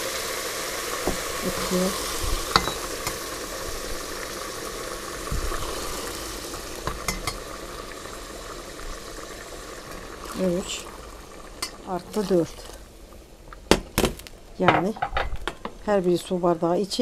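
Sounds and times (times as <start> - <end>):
water pouring into hot pot: 0.0 - 13.0
sizzle and bubbling: 0.0 - 17.0.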